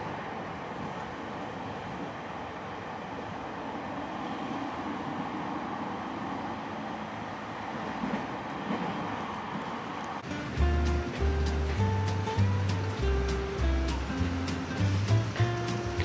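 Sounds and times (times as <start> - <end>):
train rumble and hiss: 0.0 - 16.0
background music: 10.2 - 16.0.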